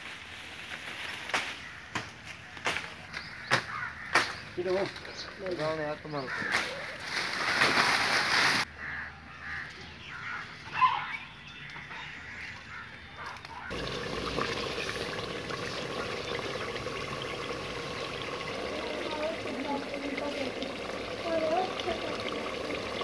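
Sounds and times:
leaves and branches rustling: 0.0s - 3.4s, 4.1s - 8.7s
curry bubbling in a pot: 13.7s - 23.0s.

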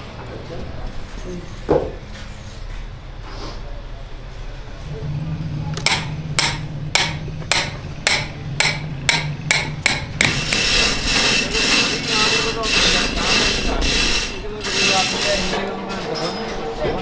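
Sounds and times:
hammer blows: 5.8s - 17.0s.

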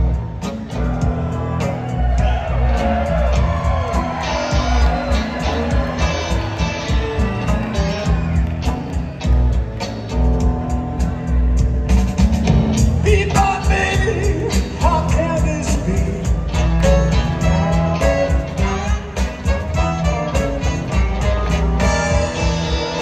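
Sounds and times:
drums: 0.0s - 23.0s
electric guitar: 0.0s - 23.0s
person singing: 13.0s - 16.6s.

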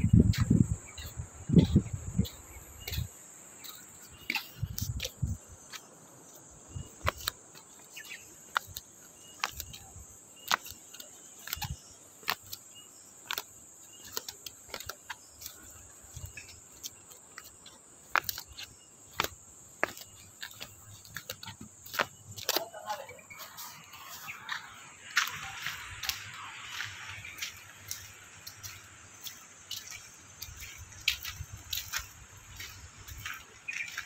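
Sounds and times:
high-pitched insect drone: 0.0s - 34.0s
footsteps on concrete: 0.1s - 34.0s.

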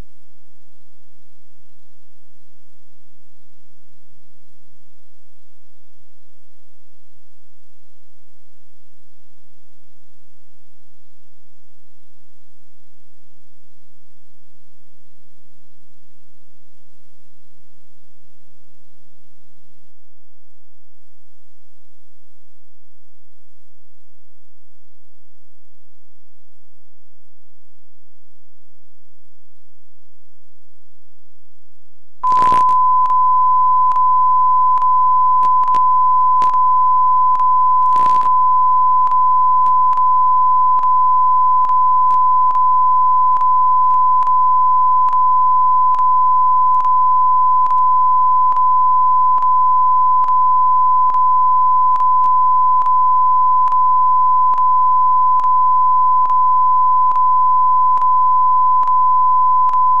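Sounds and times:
static bursts: 32.2s - 49.6s
electronic test tone: 32.2s - 60.0s
faint regular ticks: 34.7s - 36.6s.

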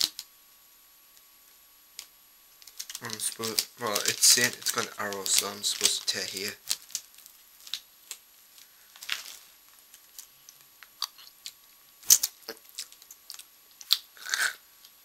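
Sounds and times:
rustling: 2.6s - 14.0s
chewing crunchy snack: 9.0s - 14.6s.

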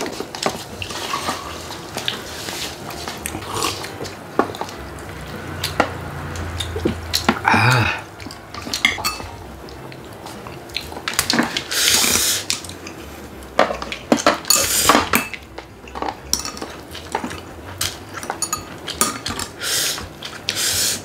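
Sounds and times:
tableware clinking against bowls: 0.0s - 2.3s, 6.8s - 9.4s, 13.6s - 20.1s
slurping noodles: 0.6s - 4.8s, 10.7s - 13.0s, 19.4s - 21.0s.

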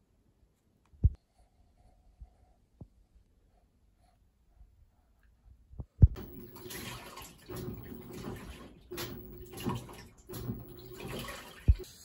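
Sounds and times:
water splashing in drum: 6.1s - 11.9s
washing machine running: 6.2s - 12.0s.

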